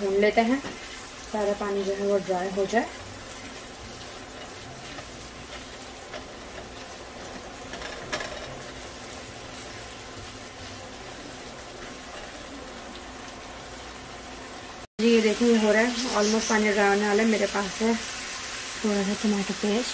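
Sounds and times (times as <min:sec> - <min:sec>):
mince sizzling in a frying pan: 0:00.0 - 0:19.9
spatula scraping a pan: 0:02.8 - 0:09.0.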